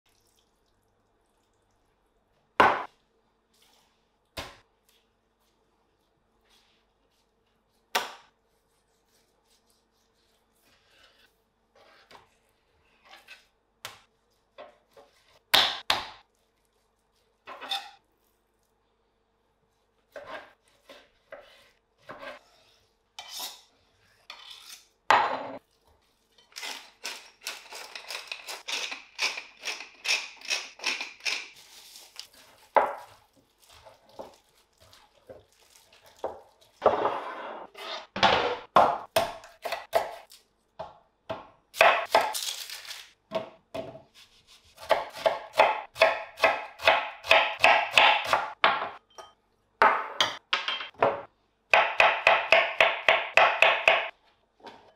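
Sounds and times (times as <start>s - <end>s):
knife on plastic cutting board: 10.6s - 12.2s
knife dicing onion: 44.1s - 48.6s.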